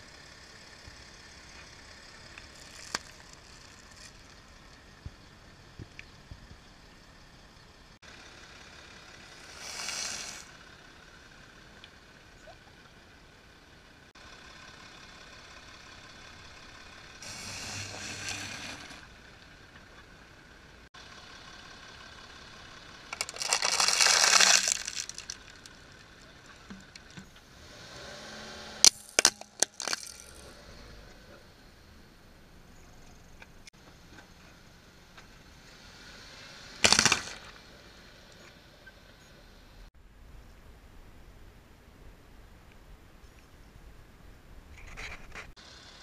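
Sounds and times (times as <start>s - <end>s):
car tyre crunching on asphalt: 23.1s - 27.2s
plastic toy cracking: 23.2s - 25.7s, 36.8s - 37.4s.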